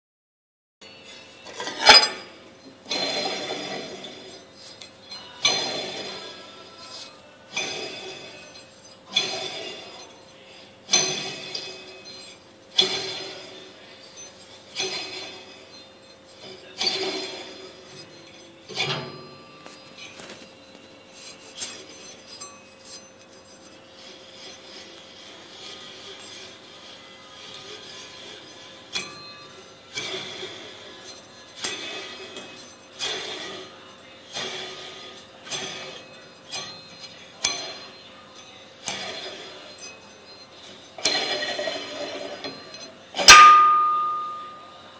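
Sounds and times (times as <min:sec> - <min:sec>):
metal grinding scrape: 0:00.8 - 0:44.9
metal damper plate clanking: 0:01.5 - 0:04.2, 0:16.4 - 0:20.4, 0:40.7 - 0:44.6.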